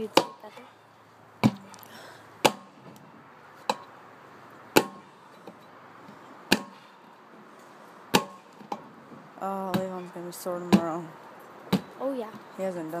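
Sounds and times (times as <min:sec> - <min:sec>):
sharp chopping blows by hand: 0:02.4 - 0:02.8, 0:06.5 - 0:06.8.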